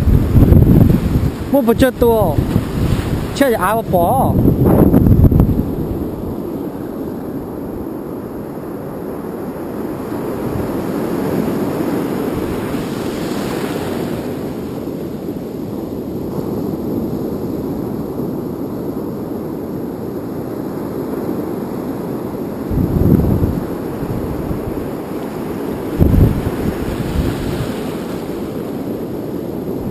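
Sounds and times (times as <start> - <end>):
breaking surf: 0.0 - 7.7, 9.6 - 15.4, 22.5 - 29.9
wind buffeting microphone: 0.0 - 8.7, 22.2 - 29.9.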